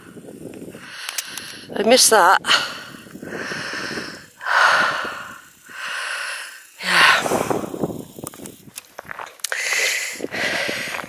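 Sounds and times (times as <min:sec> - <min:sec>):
person breathing hard: 0:00.7 - 0:01.7, 0:02.4 - 0:07.8, 0:09.4 - 0:11.0.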